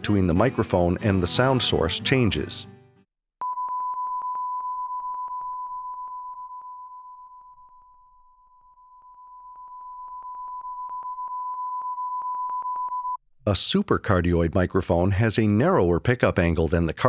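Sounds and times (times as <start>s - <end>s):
steady test tone with pulse: 3.4s - 13.2s.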